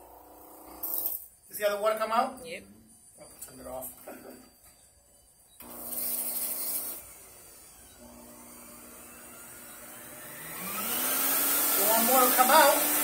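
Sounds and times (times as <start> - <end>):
vacuum cleaner motor running: 5.6 - 13.0.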